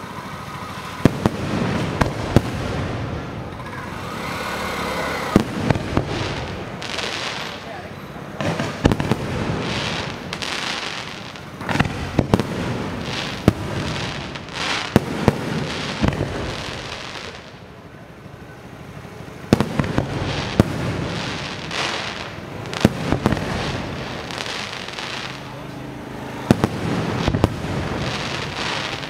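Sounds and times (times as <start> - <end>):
hissing firework fountains: 0.0 - 29.0
firework shells bursting: 8.4 - 17.7, 19.5 - 25.5, 26.4 - 29.0.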